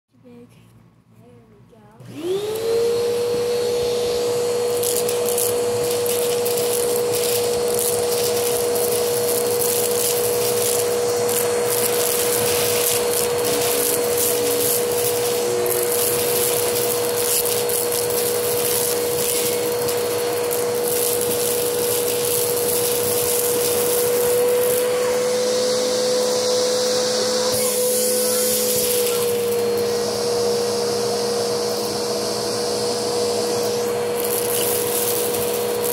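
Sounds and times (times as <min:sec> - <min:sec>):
vacuum cleaner motor whine: 0:02.0 - 0:35.9
noodles crackling in vacuum tube: 0:04.8 - 0:24.8.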